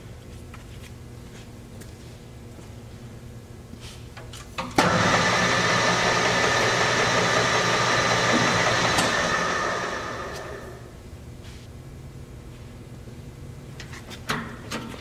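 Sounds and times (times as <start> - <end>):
lathe running with whine: 4.8 - 10.9.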